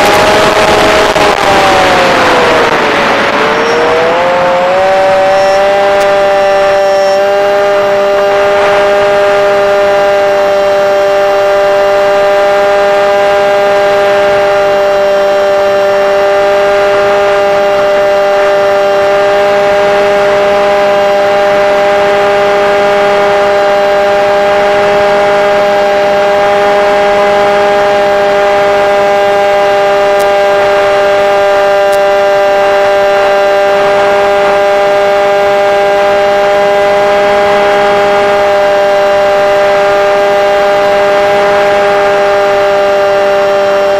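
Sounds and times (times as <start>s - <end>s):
model airplane motor whine: 0.0s - 43.9s.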